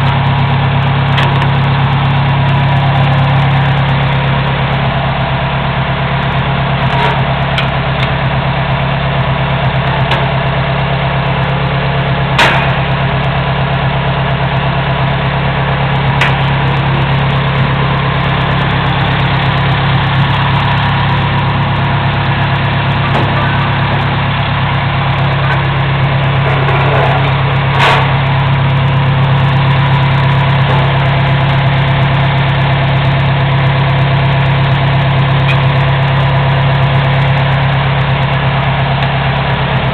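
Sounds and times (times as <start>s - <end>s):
engine idling: 0.0s - 39.9s
sharp metal clanks: 12.3s - 13.1s, 16.2s - 16.8s, 26.4s - 28.4s.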